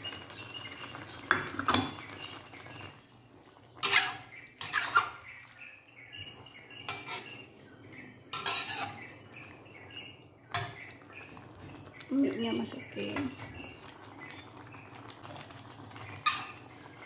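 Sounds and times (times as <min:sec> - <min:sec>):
metal spatula scraping a wok: 0:03.8 - 0:05.3, 0:06.8 - 0:07.5, 0:08.3 - 0:09.2.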